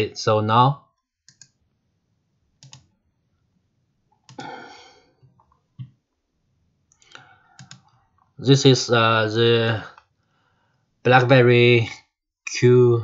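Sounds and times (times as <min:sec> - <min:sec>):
computer mouse clicks: 0:01.3 - 0:01.6, 0:02.6 - 0:02.9, 0:06.9 - 0:08.3.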